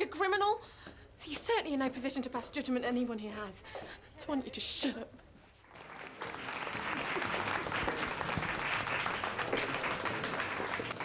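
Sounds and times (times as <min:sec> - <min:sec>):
group applauding: 0:05.7 - 0:11.0.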